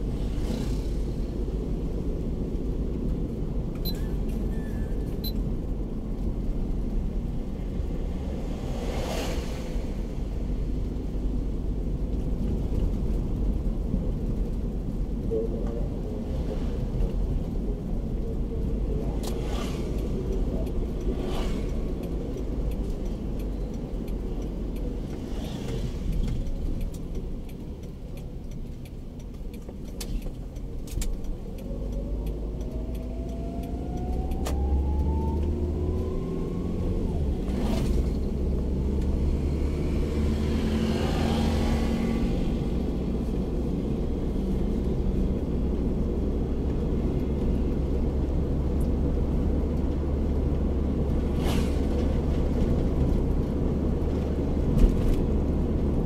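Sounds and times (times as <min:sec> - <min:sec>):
car engine accelerating: 0:31.0 - 0:56.0.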